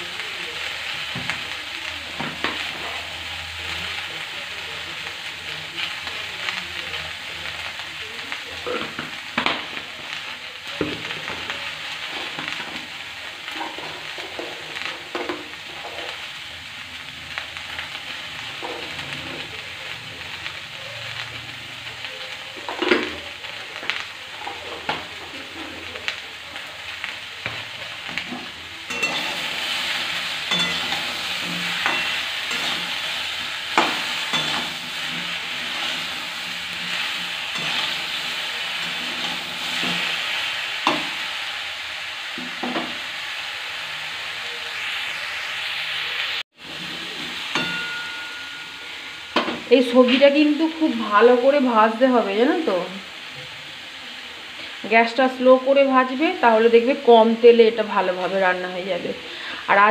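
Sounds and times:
vegetables sizzling in oil: 0.0 - 59.9
metal spatula scraping pan: 28.2 - 40.2.

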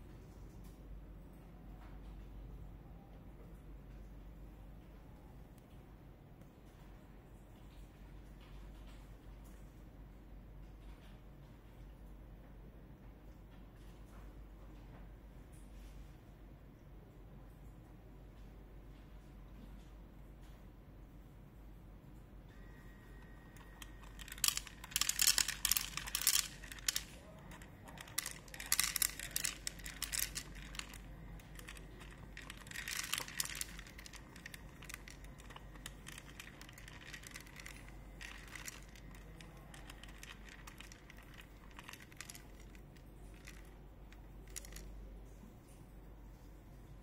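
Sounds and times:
dry kibble rattling into bowl: 23.6 - 44.9.

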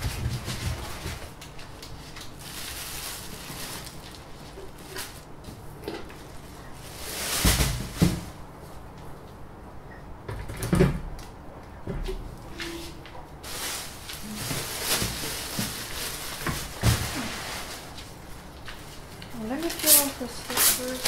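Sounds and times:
foam packing rustling: 0.0 - 5.4, 6.1 - 8.4, 12.9 - 21.0
plastic bag rustling: 0.0 - 8.4, 12.9 - 21.0.

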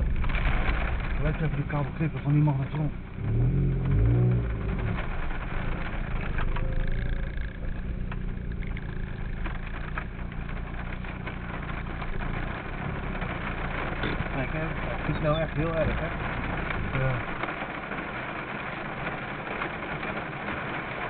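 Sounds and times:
car engine and road noise: 0.0 - 21.0
faint ticks: 0.3 - 21.0.

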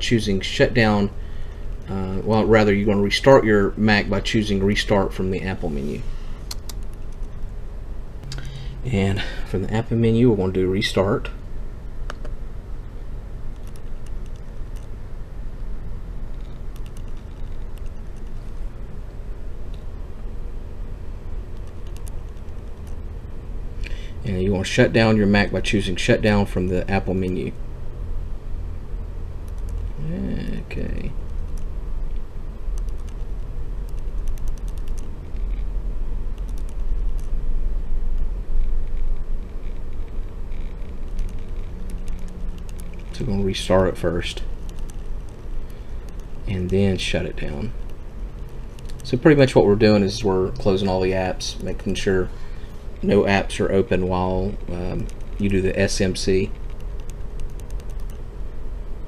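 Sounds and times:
steady low hum: 0.0 - 59.0
steady low rumble: 0.0 - 59.0
light rapid clicks: 6.4 - 7.4, 13.5 - 14.9, 16.3 - 18.5, 21.5 - 23.0, 31.2 - 35.7, 36.3 - 37.4, 38.1 - 43.3, 44.4 - 47.1, 47.7 - 49.2, 56.5 - 58.2
laptop clicks: 12.1 - 12.4, 32.8 - 33.3, 33.9 - 35.1.

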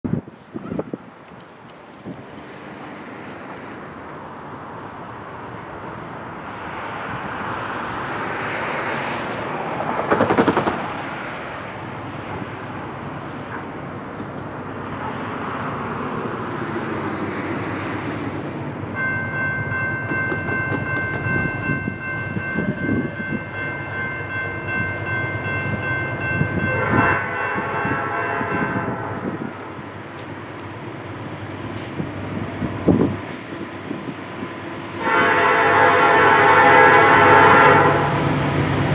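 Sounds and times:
freight train rumble: 0.0 - 38.9
train air horn chord: 26.6 - 29.2, 35.0 - 38.2.

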